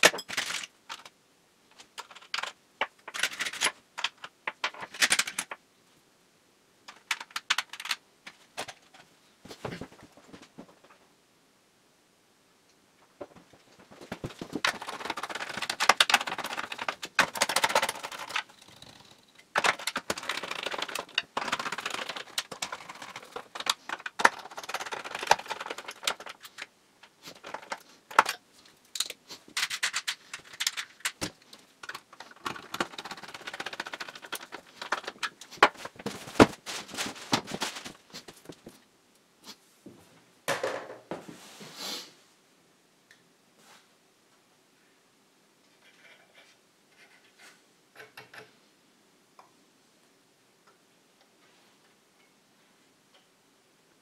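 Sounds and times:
hands handling wiring and parts: 0:00.0 - 0:05.6, 0:06.9 - 0:11.0, 0:13.0 - 0:38.9.

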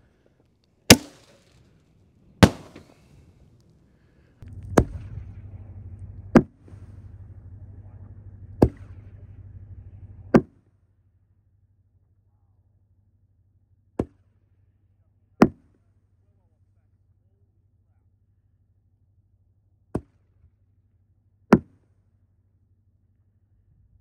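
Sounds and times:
steady low hum: 0:00.0 - 0:10.5
firework shells banging: 0:00.8 - 0:03.3, 0:04.4 - 0:10.4.

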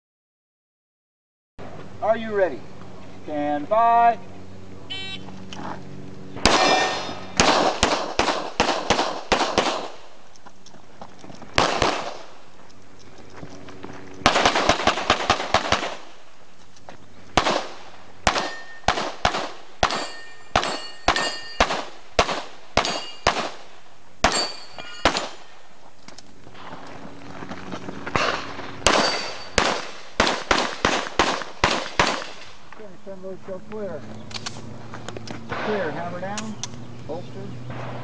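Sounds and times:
pistol shots: 0:06.4 - 0:10.2, 0:11.6 - 0:12.4, 0:14.2 - 0:16.2, 0:17.4 - 0:25.6, 0:28.1 - 0:32.6, 0:35.5 - 0:36.5
metallic ringing of steel targets: 0:06.5 - 0:07.4, 0:18.3 - 0:19.0, 0:19.8 - 0:21.9, 0:22.8 - 0:23.4, 0:24.2 - 0:25.6, 0:28.2 - 0:29.7.

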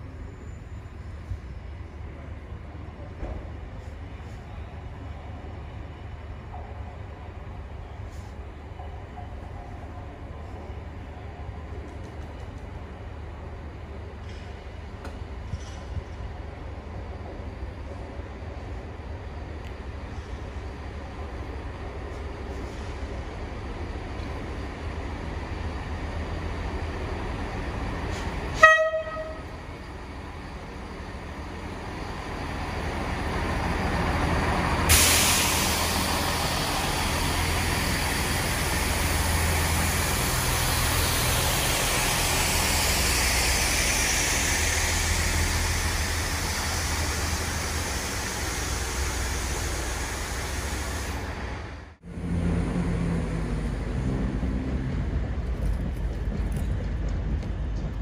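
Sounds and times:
train engines and wheels: 0:00.0 - 0:58.0
train horn toot: 0:28.6 - 0:29.5.

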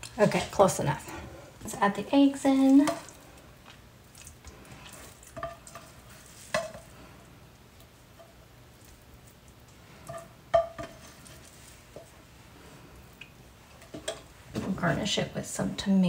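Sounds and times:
spatula scooping eggs from pan: 0:02.8 - 0:07.1, 0:07.8 - 0:12.2.

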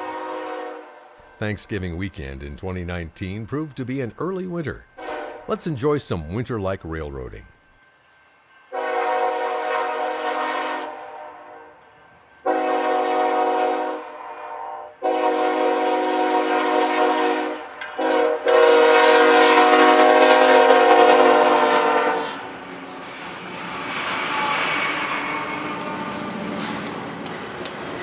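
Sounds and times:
locomotive horn blasts: 0:00.0 - 0:01.1, 0:05.0 - 0:05.6, 0:08.7 - 0:11.7, 0:12.4 - 0:22.4
train wheels rumbling on rail: 0:17.8 - 0:28.0.

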